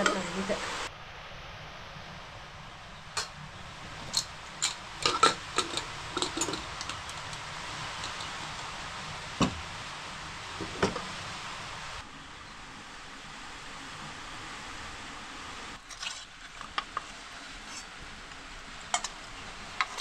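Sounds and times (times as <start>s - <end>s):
metal spoon clinking on pot: 4.1s - 8.6s.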